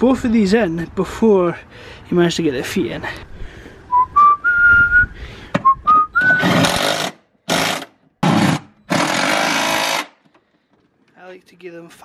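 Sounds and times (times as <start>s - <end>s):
short rising whistles: 3.9s - 6.6s
impact driver hammering: 6.5s - 10.4s.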